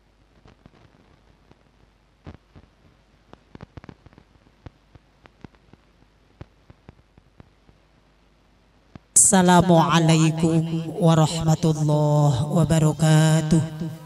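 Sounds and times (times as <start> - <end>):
low steady hum: 4.2 - 14.0.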